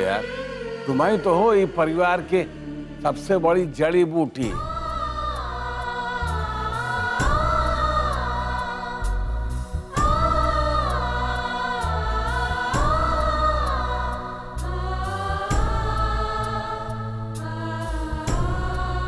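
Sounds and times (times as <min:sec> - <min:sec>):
choir holding gliding notes: 0:00.0 - 0:19.0
steady low bass: 0:04.5 - 0:19.0.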